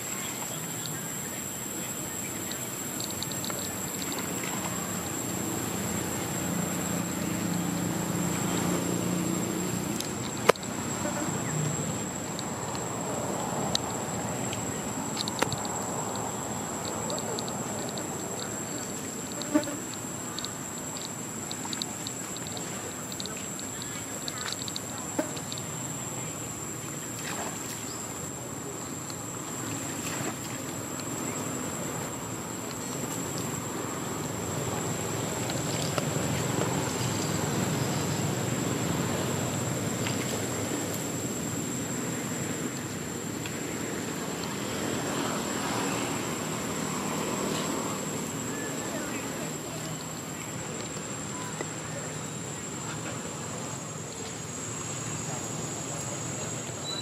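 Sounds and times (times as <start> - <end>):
insects buzzing: 0.0 - 57.0
faint rapid chirping: 54.7 - 57.0.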